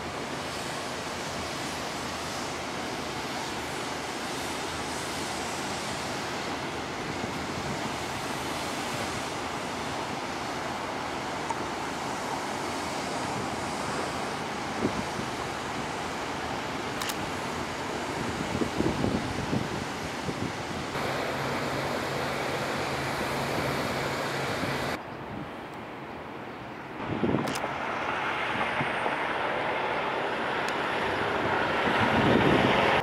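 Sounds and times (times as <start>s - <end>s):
wind: 0.0s - 33.0s
distant traffic: 20.0s - 33.0s.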